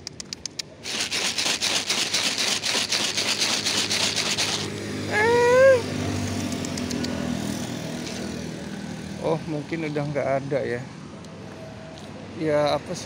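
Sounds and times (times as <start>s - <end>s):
dry cat food rattling in bag: 0.8s - 4.7s.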